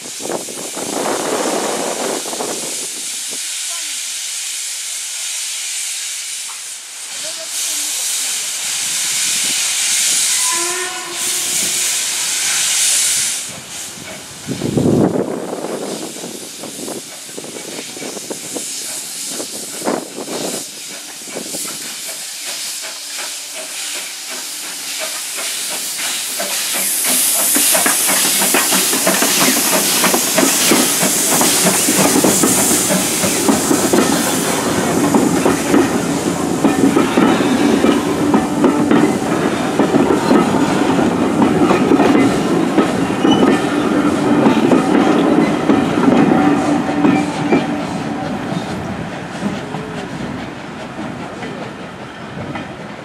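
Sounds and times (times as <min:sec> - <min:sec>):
steam hissing: 0:00.0 - 0:53.0
steam locomotive exhaust beats: 0:00.0 - 0:53.0
steam locomotive whistle: 0:09.4 - 0:13.5, 0:43.0 - 0:48.4.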